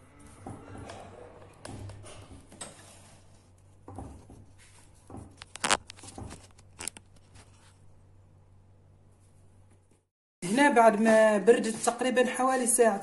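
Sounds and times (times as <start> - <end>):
plastic wrap rustling: 5.4 - 7.8.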